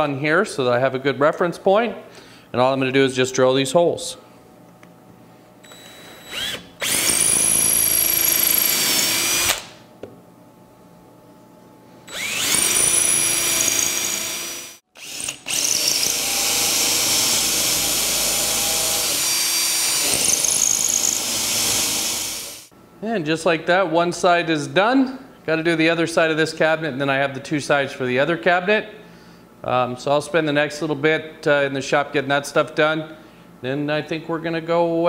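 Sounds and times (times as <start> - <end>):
cordless drill whining: 5.6 - 9.8, 12.1 - 22.7.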